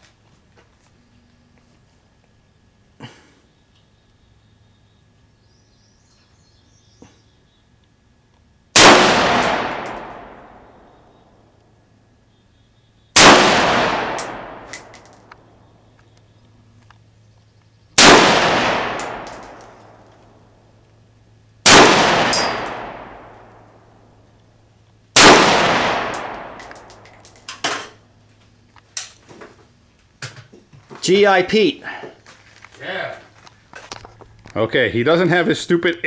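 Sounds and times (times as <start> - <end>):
rifle shots echoing: 8.7 - 11.0, 13.2 - 15.2, 18.0 - 20.2, 21.6 - 24.1, 25.2 - 27.3
rifle handling clicks: 19.0 - 20.3
metallic tinkle of brass: 22.4 - 22.8.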